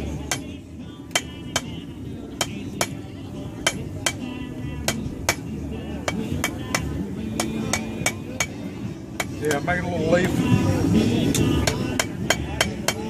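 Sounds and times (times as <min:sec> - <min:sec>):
hammer striking steel on anvil: 0:00.2 - 0:00.5, 0:01.1 - 0:03.0, 0:03.6 - 0:08.6, 0:11.3 - 0:13.0.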